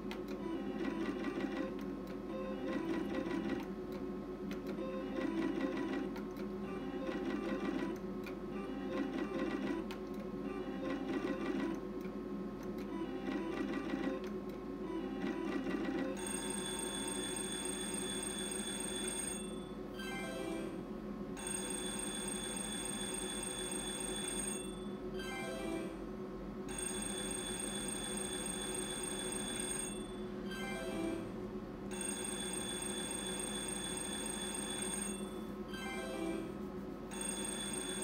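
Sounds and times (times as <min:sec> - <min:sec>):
slot machine reels ticking: 0:00.1 - 0:14.5, 0:15.1 - 0:20.5, 0:21.4 - 0:25.7, 0:26.7 - 0:31.1, 0:31.9 - 0:36.4, 0:37.1 - 0:38.0
electronic ringing win sound: 0:15.2 - 0:20.8, 0:31.9 - 0:36.5, 0:37.1 - 0:38.0.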